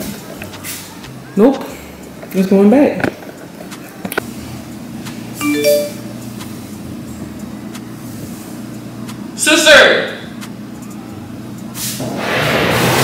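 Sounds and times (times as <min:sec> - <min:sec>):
notification chime: 0:05.4 - 0:06.1.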